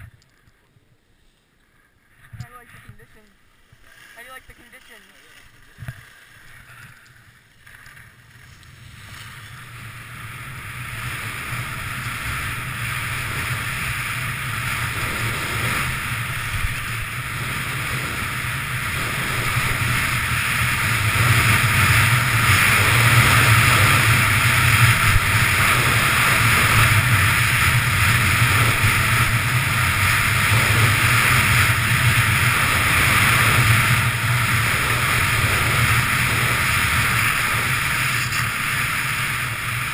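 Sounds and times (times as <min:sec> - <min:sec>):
skis running over snow: 0:01.2 - 0:39.9
wind rushing over microphone: 0:08.7 - 0:39.9.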